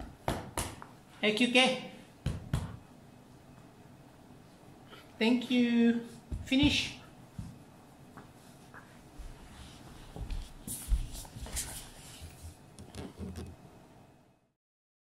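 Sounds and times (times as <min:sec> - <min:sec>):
person moving across floor: 0:06.1 - 0:13.6
dog rustling on a rug: 0:08.4 - 0:12.6.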